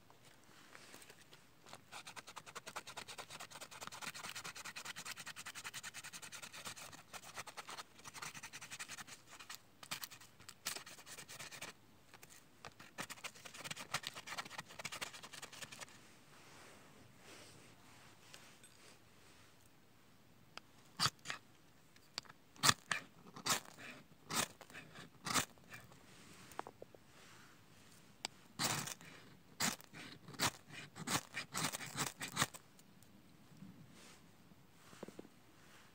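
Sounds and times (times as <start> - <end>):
knife scraping bark: 21.0 - 21.4, 22.6 - 25.9, 28.6 - 32.6.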